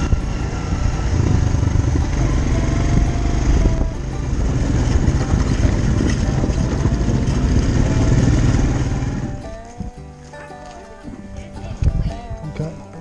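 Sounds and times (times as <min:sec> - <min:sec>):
quad bike engine running: 0:00.0 - 0:10.0.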